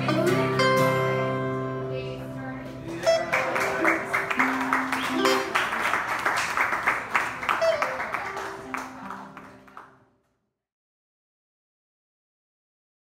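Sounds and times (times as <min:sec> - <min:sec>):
guitar notes plucked: 0:00.0 - 0:05.7
acoustic guitar chord ringing: 0:00.0 - 0:05.8
audience applause and cheering: 0:03.0 - 0:10.0.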